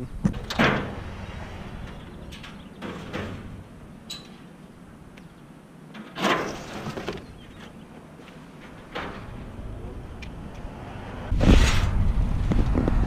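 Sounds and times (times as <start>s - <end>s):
metal shelving rattling and scraping: 0.3s - 4.5s, 6.0s - 7.8s, 8.4s - 9.7s.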